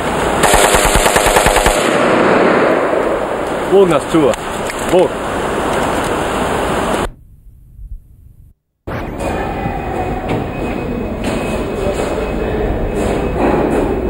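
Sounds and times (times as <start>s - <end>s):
loud rush of noise: 0.0s - 7.1s
train rumble: 8.9s - 14.0s.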